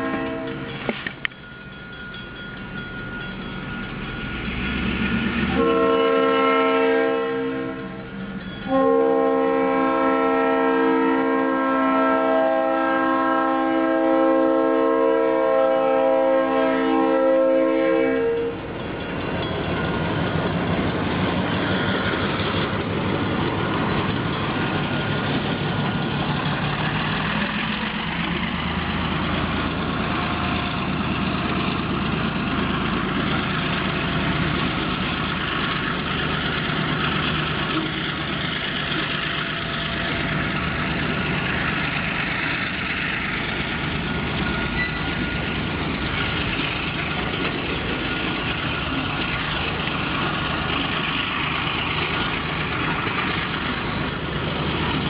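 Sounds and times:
locomotive air horn: 0.0 - 0.7, 5.5 - 18.7
locomotive engine running: 0.0 - 55.0
train cars rumbling past: 0.0 - 55.0.

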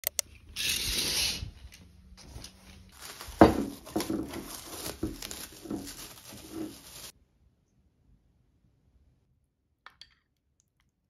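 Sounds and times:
wrapped bowl knocks and crinkles: 2.9 - 7.1.

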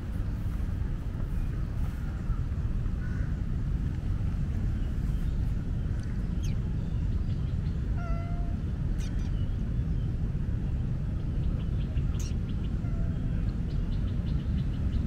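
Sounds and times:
low background rumble: 0.0 - 15.0
cat meowing: 8.0 - 8.6.

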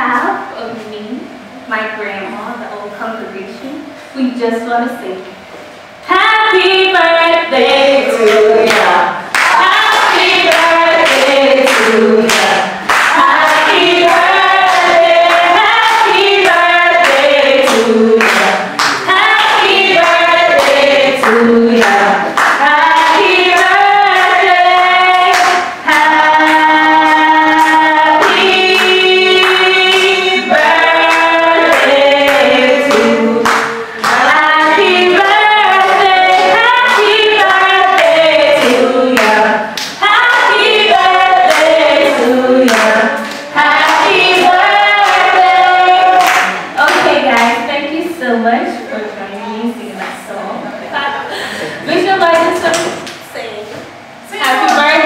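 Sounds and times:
voices singing along: 6.0 - 48.4
handclaps: 8.2 - 24.4, 25.2 - 40.7, 41.5 - 47.6.

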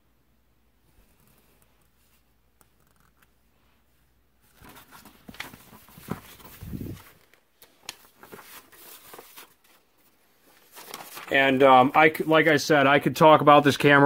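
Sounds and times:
paper rustling and crinkling: 4.4 - 12.6.

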